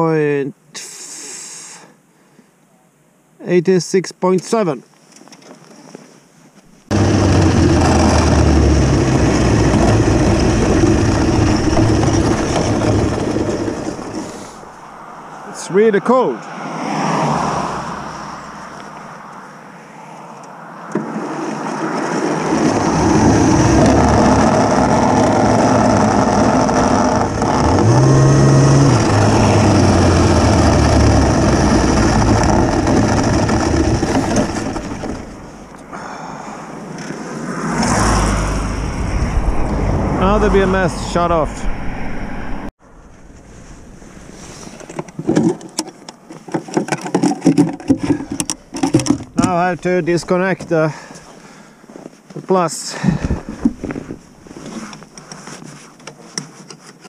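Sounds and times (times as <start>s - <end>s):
electric snowmobile track noise: 6.8s - 18.9s, 20.9s - 45.0s
electric motor hum: 6.9s - 14.8s, 22.5s - 35.8s.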